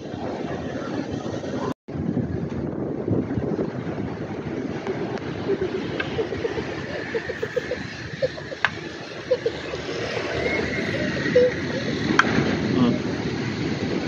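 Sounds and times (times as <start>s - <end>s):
wind on microphone: 0.0s - 14.0s
distant voices: 4.1s - 14.0s.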